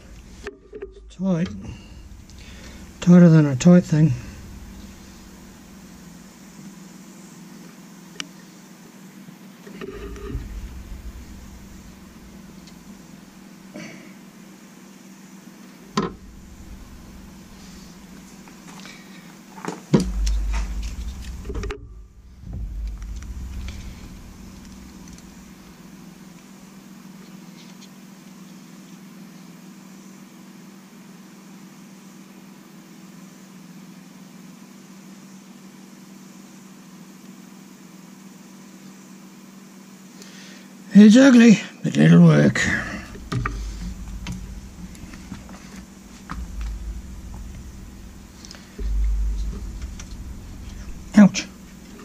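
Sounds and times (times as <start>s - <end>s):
low bumps and rumbles: 0.0s - 6.9s, 9.7s - 13.8s, 15.9s - 19.2s, 20.0s - 26.8s, 42.5s - 52.0s
low machine hum: 0.0s - 7.7s, 9.5s - 27.2s, 42.5s - 52.0s.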